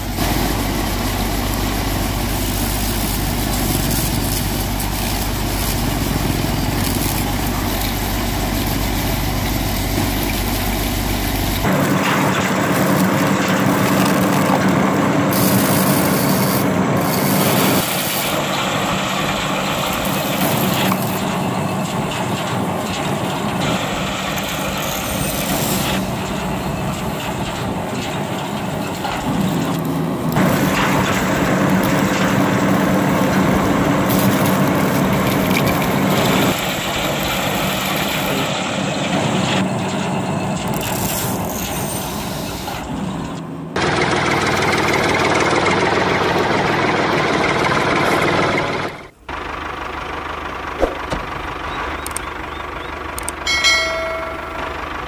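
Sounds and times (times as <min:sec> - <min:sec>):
toy thresher motor hum: 0:00.0 - 0:27.3, 0:29.1 - 0:38.5, 0:40.6 - 0:42.6
dry stalks crunching: 0:00.3 - 0:11.7.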